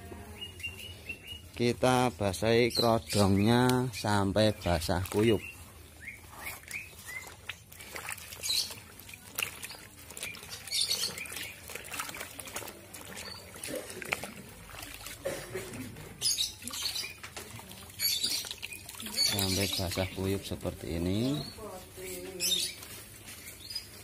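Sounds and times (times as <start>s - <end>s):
cloth splashing in water: 3.1s - 21.9s.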